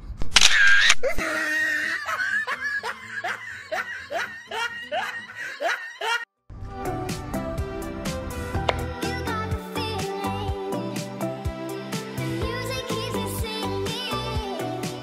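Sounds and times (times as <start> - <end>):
person snickering laugh: 0.8 - 6.2
background music: 2.1 - 15.0.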